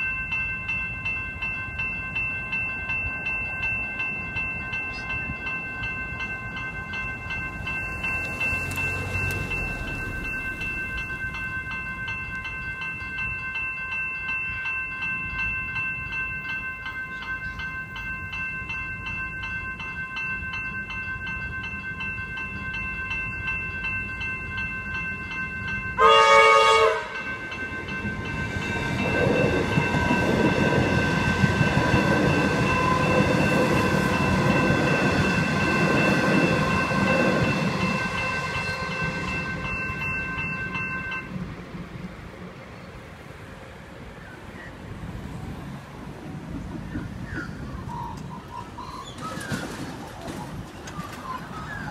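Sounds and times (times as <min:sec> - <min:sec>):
level crossing bells ringing: 0:00.0 - 0:41.6
train passing rumble: 0:00.0 - 0:51.9
train horn blast: 0:26.0 - 0:27.3, 0:36.4 - 0:39.6.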